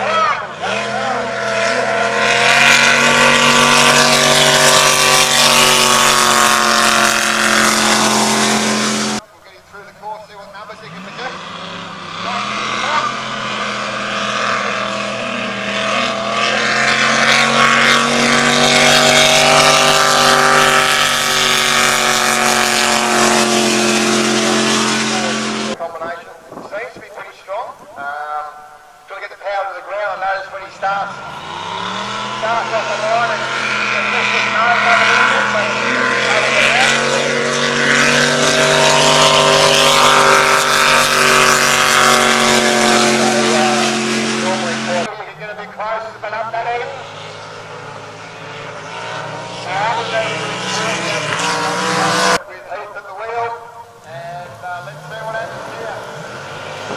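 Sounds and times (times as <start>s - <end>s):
boat engine running hard: 0.0s - 26.6s, 30.5s - 52.5s, 53.4s - 56.9s.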